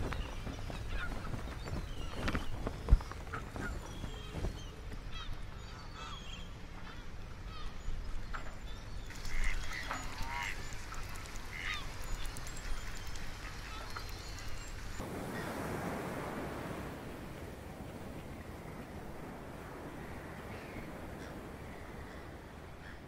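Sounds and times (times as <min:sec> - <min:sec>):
low wind-like ambience: 0:00.0 - 0:23.0
soft wash of water: 0:00.0 - 0:23.0
waterfowl calling: 0:09.1 - 0:15.8.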